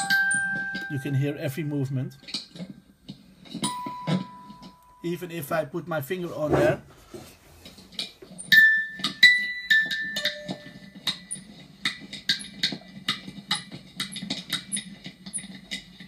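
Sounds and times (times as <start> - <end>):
short ringing tones: 3.6 - 5.2, 8.5 - 11.2
sharp clicks and crackles: 9.8 - 16.0.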